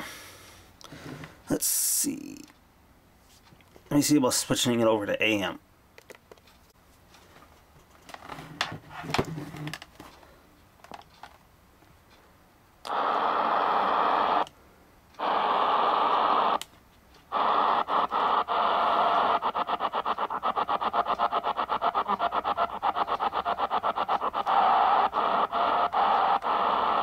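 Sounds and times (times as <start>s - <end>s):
radio static hissing: 12.9s - 14.5s, 15.2s - 16.6s, 17.3s - 27.0s.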